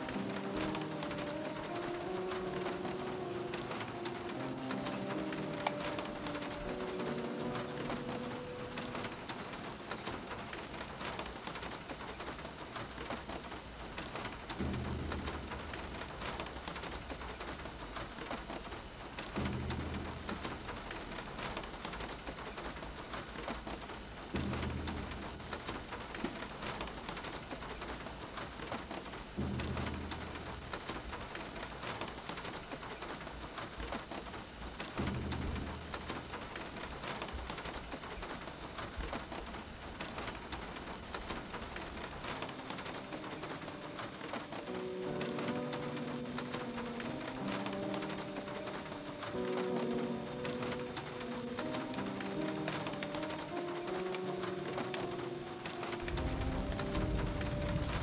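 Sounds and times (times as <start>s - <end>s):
rain hiss: 0.0s - 58.0s
low booming pulse: 14.6s - 16.8s, 19.4s - 21.2s, 29.4s - 31.0s, 35.0s - 36.3s.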